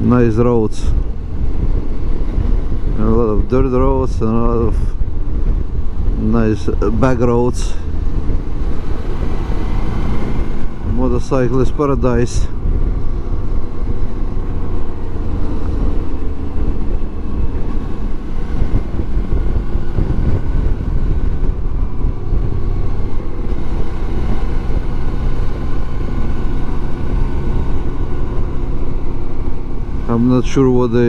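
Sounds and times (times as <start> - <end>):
motorcycle engine cruising: 0.0 - 31.0
wind noise on microphone: 0.0 - 31.0.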